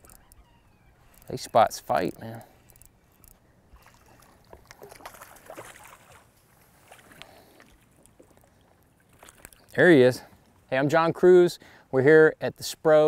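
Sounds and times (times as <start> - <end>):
faint water noise: 0.0 - 13.0.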